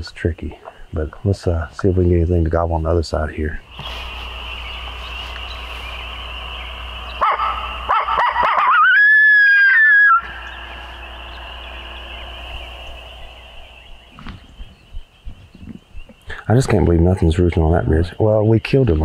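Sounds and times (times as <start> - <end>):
long high howl call: 3.6 - 14.5
coyote call yips: 7.1 - 12.0.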